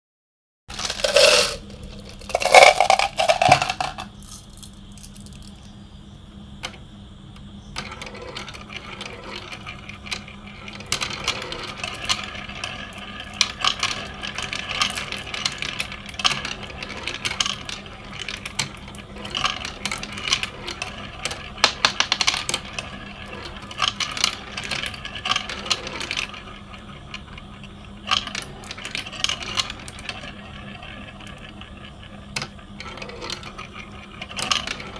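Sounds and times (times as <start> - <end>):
loud marble clatters: 0.7 - 5.6
marbles rattling through plastic track: 0.7 - 5.6, 7.8 - 34.9
steady low hum: 0.7 - 34.9.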